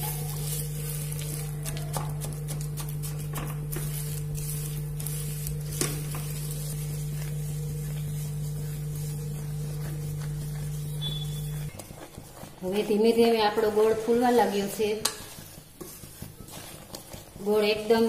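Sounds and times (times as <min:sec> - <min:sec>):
soft sizzling in pan: 0:00.0 - 0:11.8
steady low hum: 0:00.0 - 0:12.8
wooden spatula scraping pan: 0:03.3 - 0:18.0.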